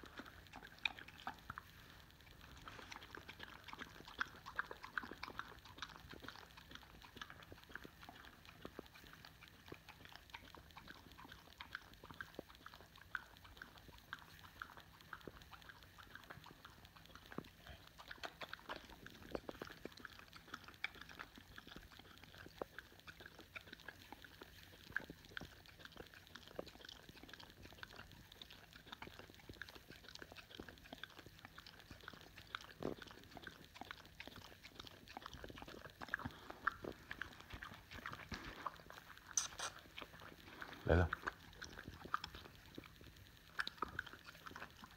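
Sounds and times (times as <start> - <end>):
dog licking and lip smacking: 0.0 - 44.9.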